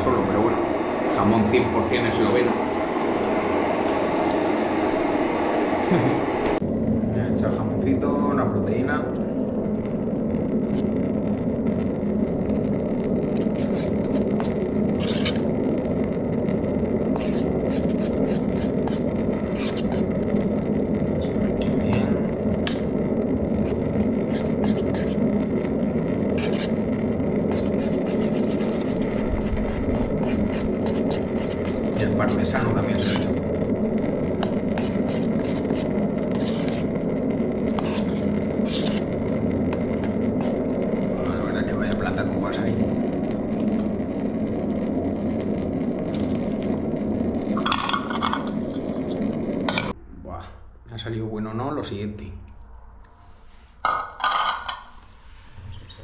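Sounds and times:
camping stove burner roar: 0:00.0 - 0:56.0
steady low rumble: 0:00.0 - 0:56.0
metal spoon scraping pot: 0:13.3 - 0:15.5, 0:17.1 - 0:20.2, 0:23.6 - 0:25.3, 0:26.2 - 0:33.4, 0:34.4 - 0:37.0, 0:37.7 - 0:39.1, 0:53.9 - 0:55.0.

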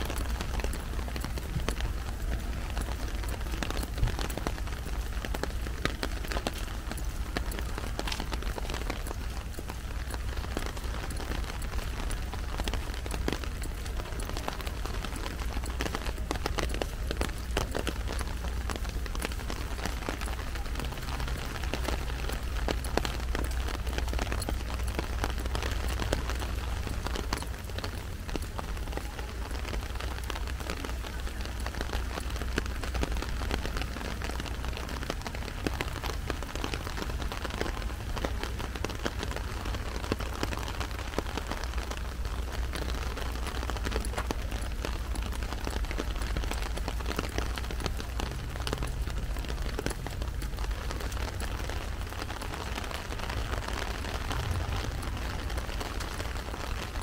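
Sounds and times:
heavy rain on an umbrella: 0:00.0 - 0:57.0
low rumble: 0:51.4 - 0:57.0.

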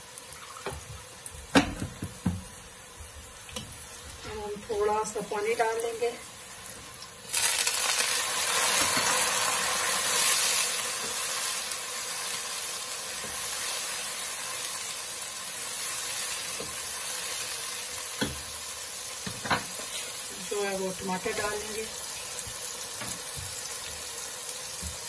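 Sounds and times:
onions sizzling in oil: 0:00.0 - 0:25.0
spatula stirring onions: 0:06.3 - 0:25.0.

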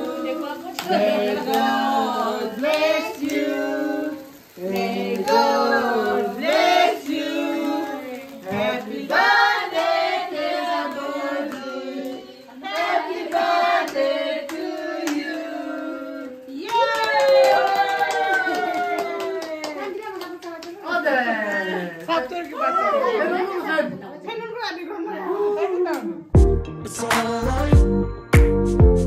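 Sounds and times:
adults and children singing: 0:00.0 - 0:16.9.

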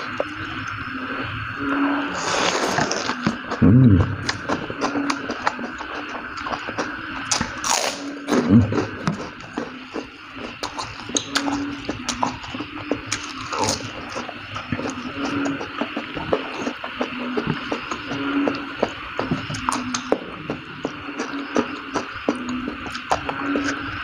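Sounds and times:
man slurping noodles: 0:02.1 - 0:04.4
noisy chewing: 0:02.1 - 0:24.0.

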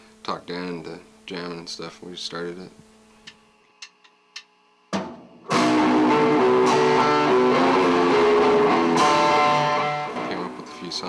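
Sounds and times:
drum kit: 0:04.9 - 0:11.0
electric guitar: 0:05.5 - 0:11.0.

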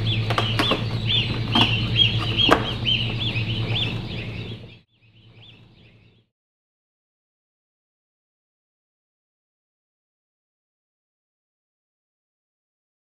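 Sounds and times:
chicks peeping: 0:00.0 - 0:06.3
steady low hum: 0:00.0 - 0:06.3.

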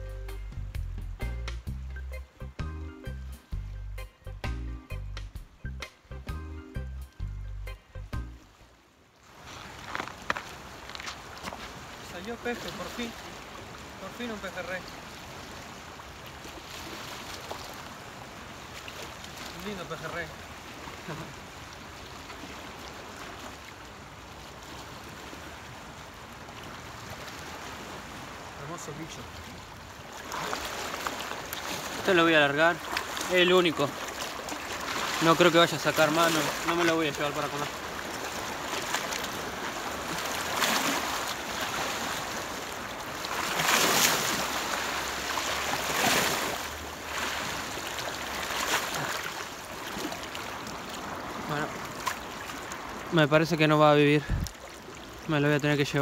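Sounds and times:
small waves washing on rocks: 0:09.2 - 0:56.0.

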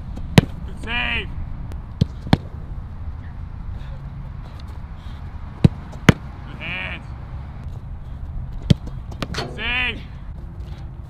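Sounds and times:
football being kicked: 0:00.3 - 0:00.6, 0:02.0 - 0:02.5, 0:05.6 - 0:06.3
person shouting: 0:06.5 - 0:07.1, 0:09.5 - 0:10.1.

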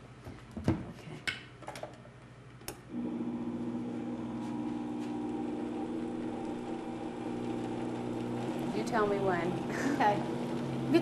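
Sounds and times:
blender motor running: 0:02.9 - 0:11.0.

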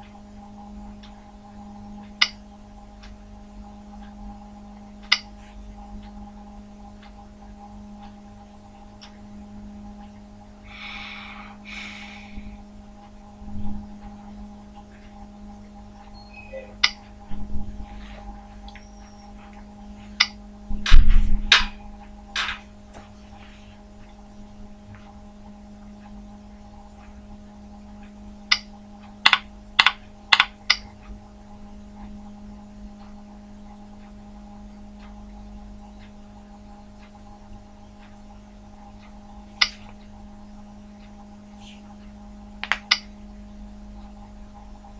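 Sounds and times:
steady electrical hum: 0:00.0 - 0:44.9
computer mouse clicks: 0:28.5 - 0:30.9.

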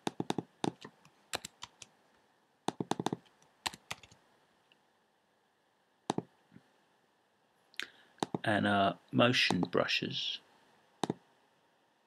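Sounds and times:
computer keyboard keystrokes: 0:00.0 - 0:01.9, 0:02.7 - 0:04.2, 0:08.2 - 0:08.4.

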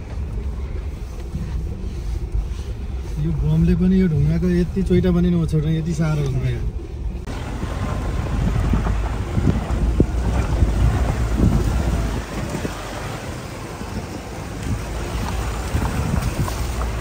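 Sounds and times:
vehicle on rough dirt road: 0:00.0 - 0:17.0
wind buffeting microphone: 0:07.2 - 0:17.0.

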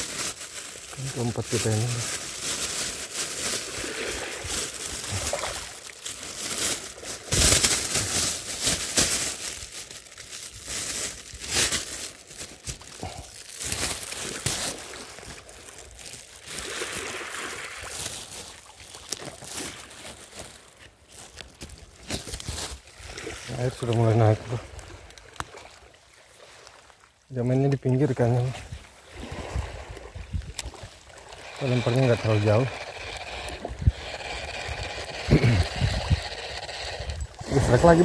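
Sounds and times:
seawater sloshing and crackling: 0:00.0 - 0:38.0
water rush: 0:16.3 - 0:18.0.

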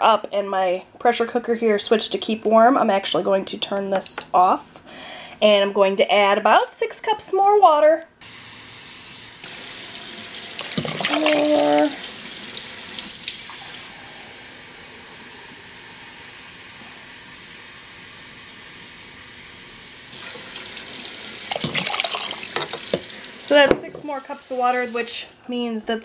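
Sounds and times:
water pouring into soup: 0:09.4 - 0:14.0, 0:20.1 - 0:23.6.

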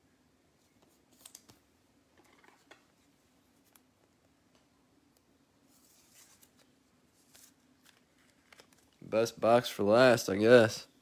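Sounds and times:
trading cards rustling: 0:05.7 - 0:09.1.

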